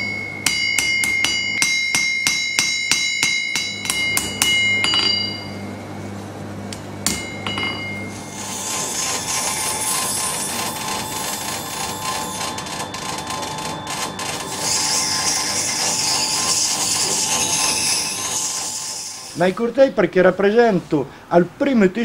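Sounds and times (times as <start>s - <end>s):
forging hammer ringing on anvil: 0.0s - 5.8s, 7.0s - 8.5s, 9.6s - 18.3s.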